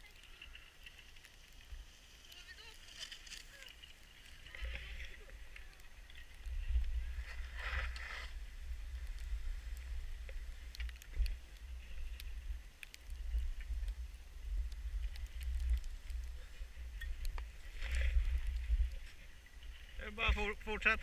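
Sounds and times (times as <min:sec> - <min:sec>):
wind rumble on microphone: 0:04.4 - 0:21.0
skis hissing through snow: 0:07.0 - 0:10.6.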